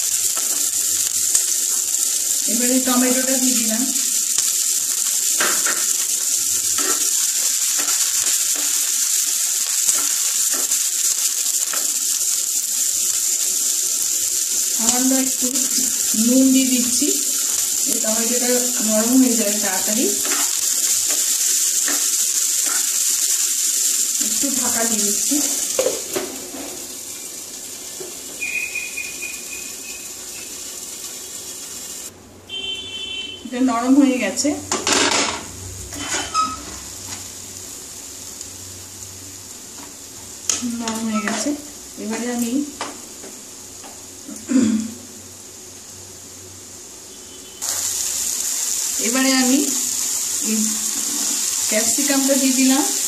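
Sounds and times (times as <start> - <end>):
vegetables sizzling in oil: 0.0 - 53.0
thin high whistle: 28.4 - 30.5, 47.1 - 47.8.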